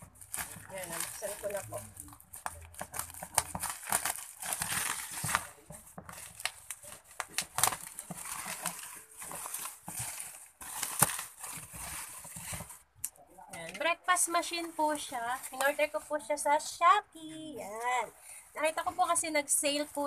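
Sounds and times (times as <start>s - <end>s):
packaging rustling and crinkling: 0.0s - 13.0s, 14.4s - 16.4s.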